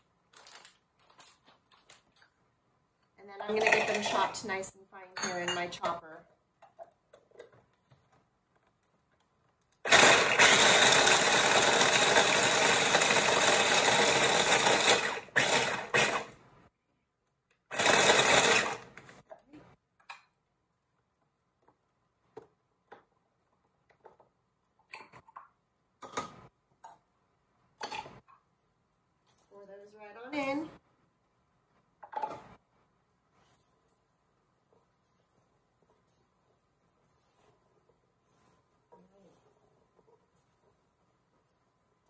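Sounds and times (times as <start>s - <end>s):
food chopper running: 9.9s - 16.4s, 17.7s - 19.0s.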